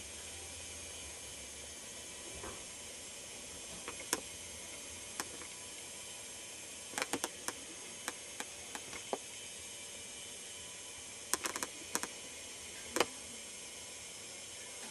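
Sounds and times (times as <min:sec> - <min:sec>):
camcorder hiss: 0:00.0 - 0:14.9
sharp camcorder handling clicks: 0:11.4 - 0:12.1.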